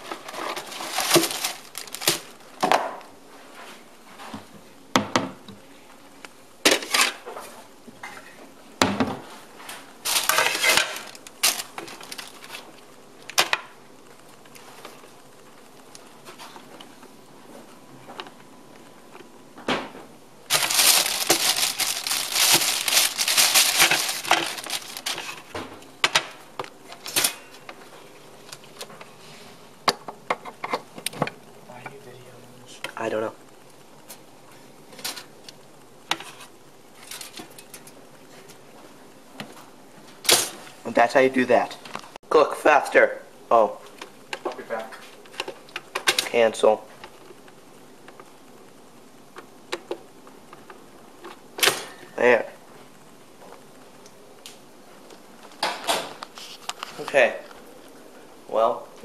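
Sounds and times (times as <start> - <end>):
loud rustling: 0.0 - 2.4, 10.0 - 12.7, 20.5 - 25.6
packaging being handled: 0.0 - 2.4, 10.0 - 12.8, 20.5 - 25.6.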